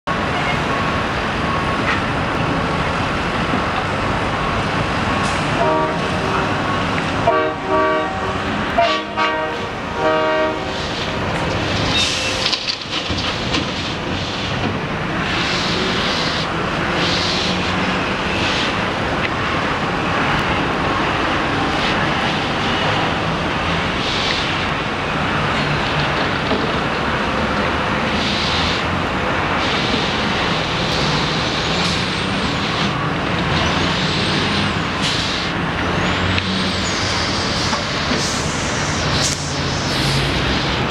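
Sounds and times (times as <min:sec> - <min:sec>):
city traffic and trucks: 0:00.0 - 0:40.9
vehicle horn blasts: 0:05.6 - 0:06.4, 0:07.2 - 0:10.6.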